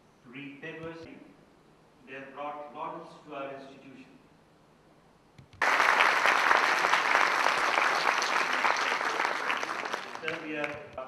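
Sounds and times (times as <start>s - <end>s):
audience applauding: 5.6s - 10.8s.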